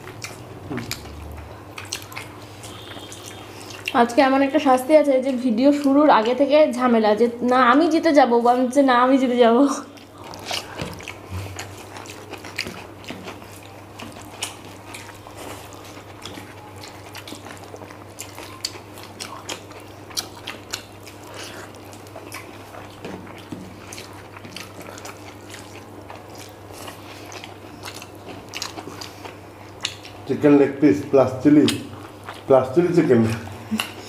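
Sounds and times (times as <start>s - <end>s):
chewing and lip smacks: 0.0s - 4.0s, 9.8s - 30.3s, 31.6s - 32.5s, 33.3s - 34.0s.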